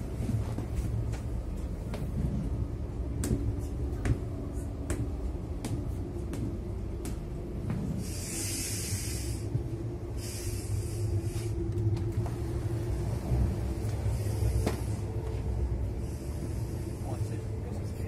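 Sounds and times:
train rumbling: 0.0s - 18.0s
hiss: 7.9s - 11.8s, 14.0s - 15.1s, 16.0s - 17.4s.

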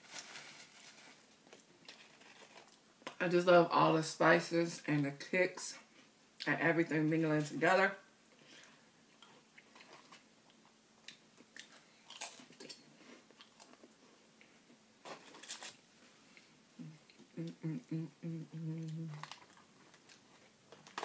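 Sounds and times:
chewing and crunching crackers: 0.4s - 3.2s, 8.5s - 17.3s, 18.8s - 21.0s
person humming mm: 16.8s - 19.3s.

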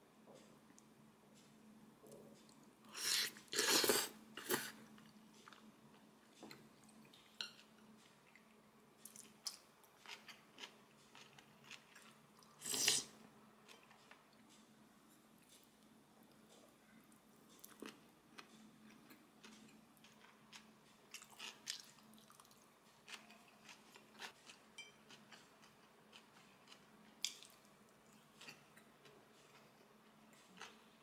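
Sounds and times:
person chewing: 9.0s - 13.1s, 17.5s - 31.0s.

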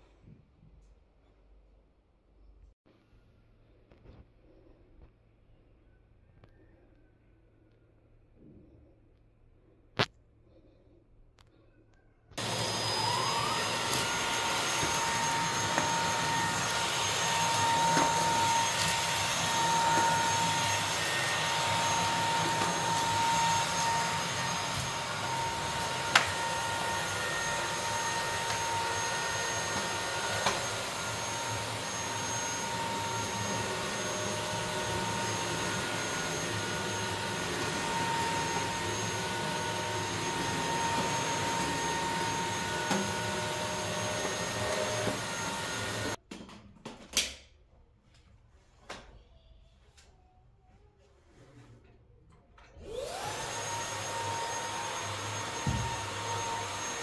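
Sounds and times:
vacuum cleaner whining: 12.4s - 46.2s, 52.6s - 57.0s.

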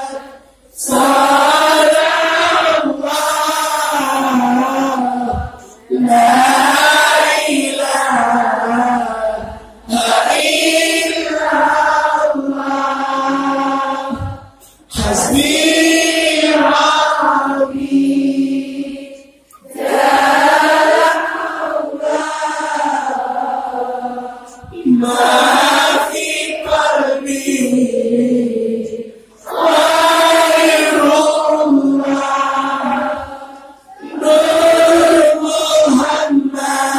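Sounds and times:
crowd singing in unison: 0.0s - 36.9s
man chanting into microphone: 13.3s - 16.9s.

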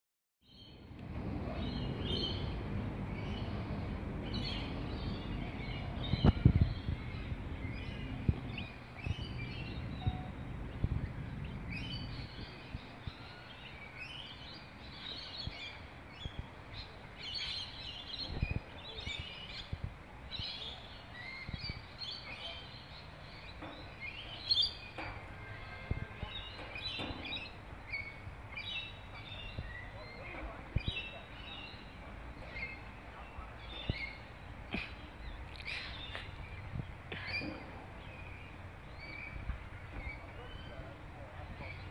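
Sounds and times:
birds chirping: 0.4s - 41.9s
low rumble: 0.8s - 13.2s.

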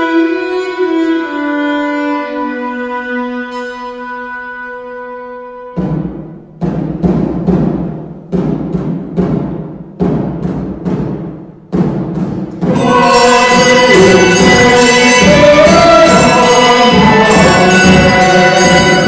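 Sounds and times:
low drum strokes: 5.8s - 19.0s
handbells and church ensemble: 12.6s - 19.0s.

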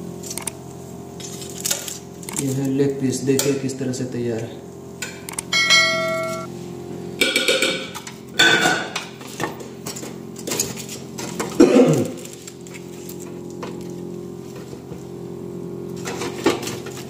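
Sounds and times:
steady low hum: 0.0s - 17.0s
ringing clang: 5.5s - 6.5s.

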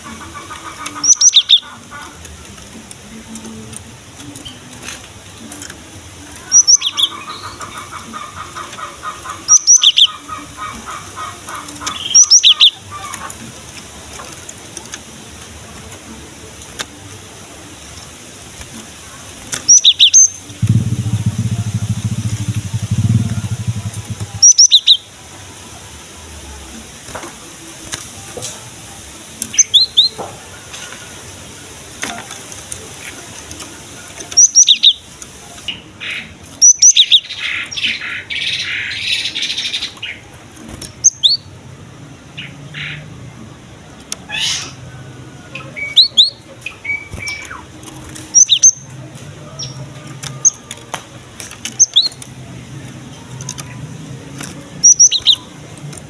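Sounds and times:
bird chirping: 19.7s - 25.0s.

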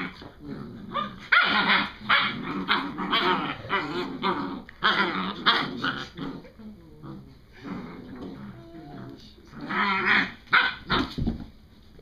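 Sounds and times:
puppies growling: 0.0s - 11.2s
puppies barking and yipping: 1.0s - 5.8s.

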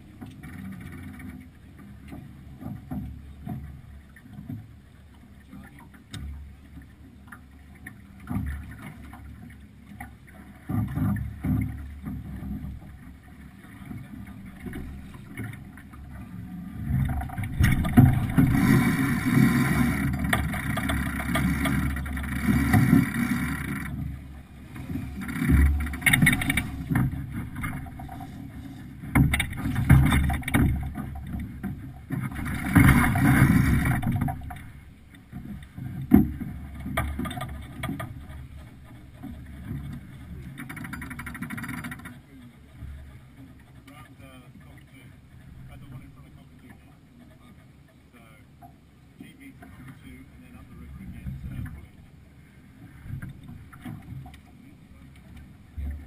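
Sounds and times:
wind and water rushing: 0.0s - 56.0s.

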